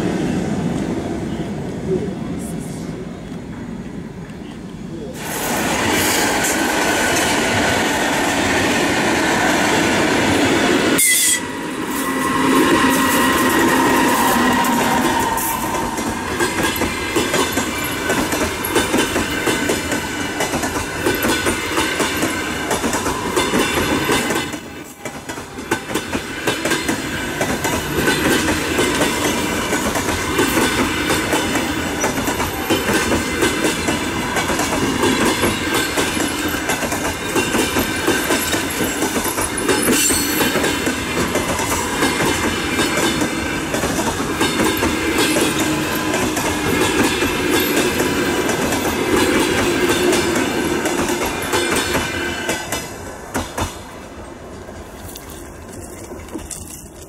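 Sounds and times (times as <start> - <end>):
train coaches rumbling past: 0.0 - 57.0
wheels clicking over rail joints: 12.7 - 53.9, 54.8 - 57.0.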